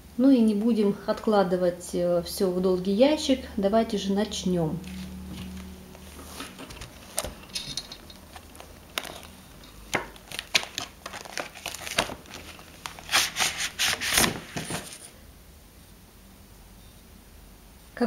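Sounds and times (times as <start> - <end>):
packaging crinkling and rustling: 4.9 - 15.1.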